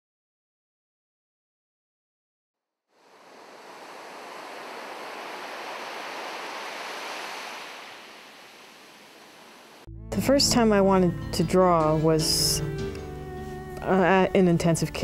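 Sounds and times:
ocean surf washing on beach: 3.0s - 9.9s.

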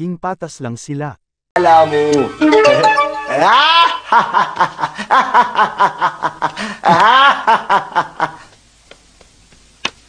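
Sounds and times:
man laughing: 3.3s - 8.5s.

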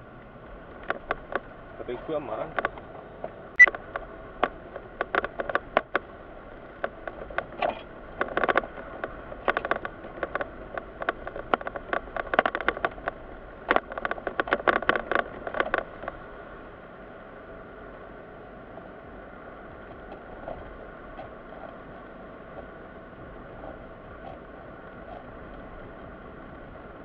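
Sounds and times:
car cabin low hum: 0.0s - 27.0s
quick irregular clicks and crackles: 2.5s - 16.3s.

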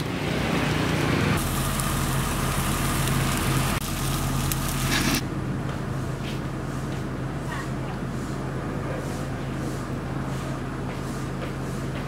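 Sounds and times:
fish sizzling on a grill: 0.0s - 5.2s
low motor hum: 0.0s - 12.0s.

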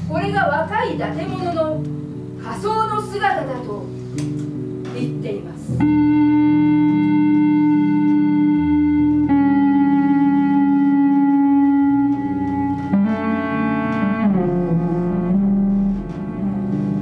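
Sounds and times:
bass playing sustained notes: 0.0s - 17.0s
low held tones: 5.7s - 17.0s.

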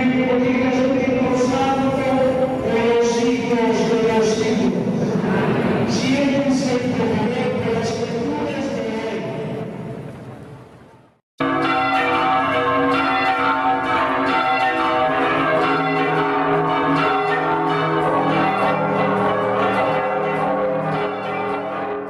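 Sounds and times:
church bells pealing: 0.0s - 9.3s, 11.4s - 22.0s.

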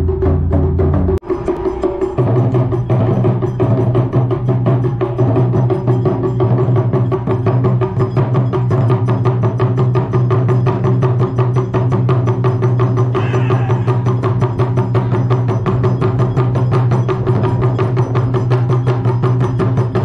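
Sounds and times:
steady low drum tone: 13.0s - 19.1s.

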